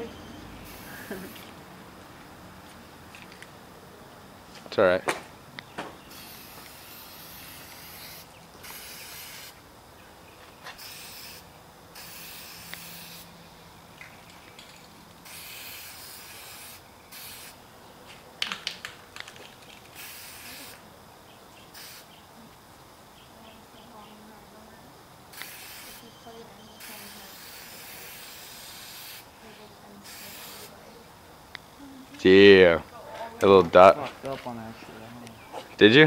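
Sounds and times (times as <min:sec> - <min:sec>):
spray paint can hissing: 0:00.6 - 0:01.5, 0:06.1 - 0:09.6, 0:10.7 - 0:13.3, 0:14.2 - 0:17.6, 0:19.2 - 0:20.8, 0:21.7 - 0:22.2, 0:25.3 - 0:26.1, 0:26.8 - 0:30.8.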